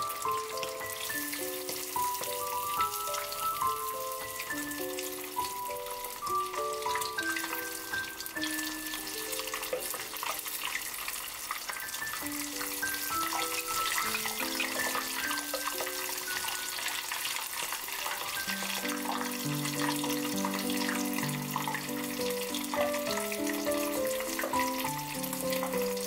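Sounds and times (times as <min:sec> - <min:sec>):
background music melody: 0:00.0 - 0:26.0
oil sizzling while deep-frying: 0:00.0 - 0:26.0.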